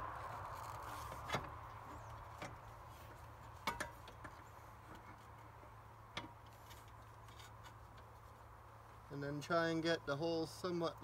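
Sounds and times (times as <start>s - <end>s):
fan assembly clicks and knocks: 1.1s - 5.2s, 6.1s - 8.1s.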